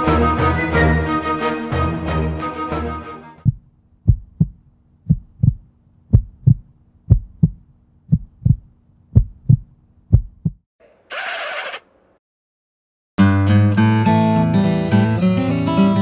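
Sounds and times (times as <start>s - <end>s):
heartbeat thumps: 3.4s - 10.6s.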